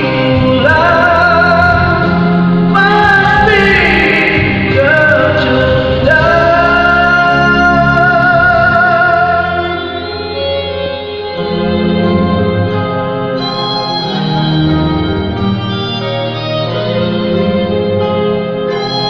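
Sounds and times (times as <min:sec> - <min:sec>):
man singing into a microphone: 0:00.0 - 0:10.6
instrumental backing music: 0:00.0 - 0:19.0.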